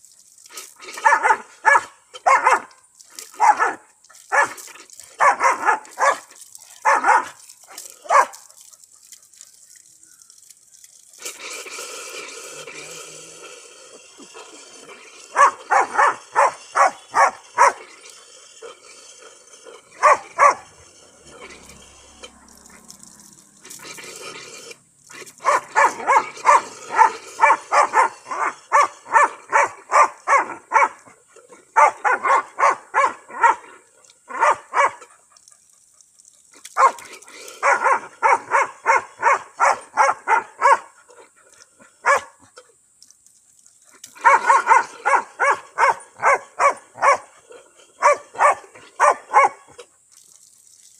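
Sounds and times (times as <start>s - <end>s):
water running from a tap: 0.0s - 30.9s, 49.0s - 50.9s
dog barking and yipping: 0.9s - 9.1s, 15.3s - 17.9s, 19.8s - 21.8s, 25.2s - 33.7s, 34.3s - 35.6s, 36.8s - 41.0s, 42.0s - 42.5s, 44.2s - 49.8s.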